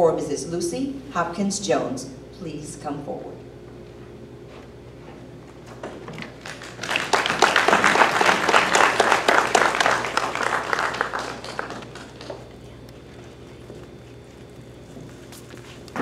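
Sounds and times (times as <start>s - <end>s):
audience applauding: 6.4s - 12.5s.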